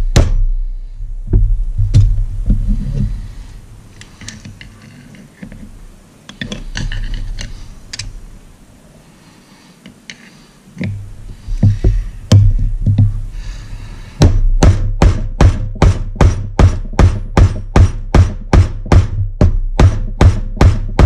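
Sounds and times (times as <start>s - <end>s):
screwdriver clicking and scraping metal: 4.0s - 8.2s, 9.8s - 11.0s.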